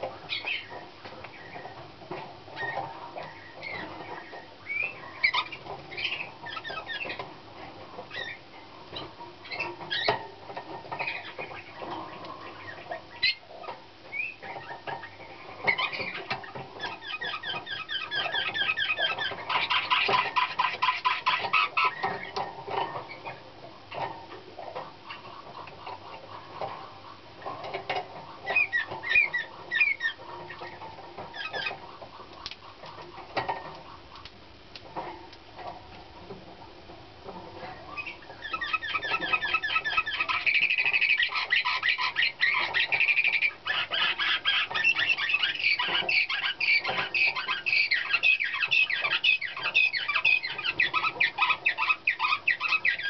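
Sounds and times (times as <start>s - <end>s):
canary singing: 0.0s - 53.0s.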